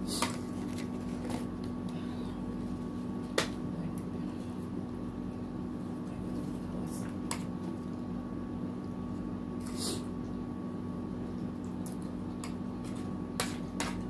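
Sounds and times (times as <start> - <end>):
air conditioner hum: 0.0 - 14.0.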